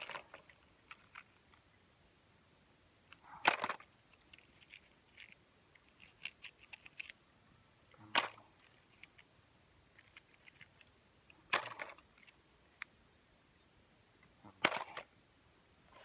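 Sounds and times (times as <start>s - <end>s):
toy cars clicking: 0.0s - 1.6s, 3.1s - 7.2s, 9.9s - 12.9s, 14.6s - 15.1s.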